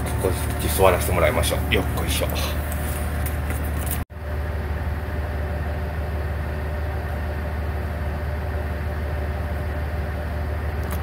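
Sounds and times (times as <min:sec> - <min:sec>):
diesel engine idling hum: 0:00.0 - 0:11.0.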